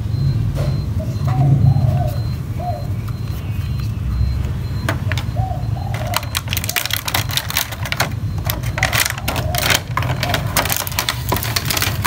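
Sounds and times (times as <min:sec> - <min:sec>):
bird cooing: 0:00.9 - 0:04.3, 0:05.0 - 0:07.4, 0:08.5 - 0:11.0
plastic packaging crinkling: 0:05.9 - 0:12.0.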